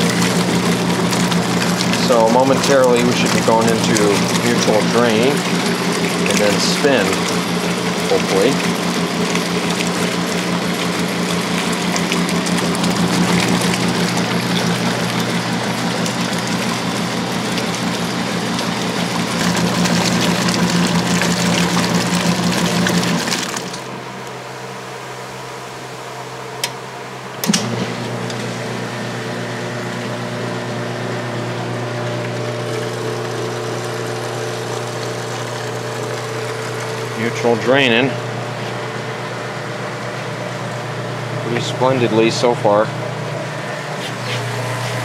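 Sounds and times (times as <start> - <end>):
water sloshing: 0.0 - 23.9
washing machine motor hum: 0.0 - 45.0.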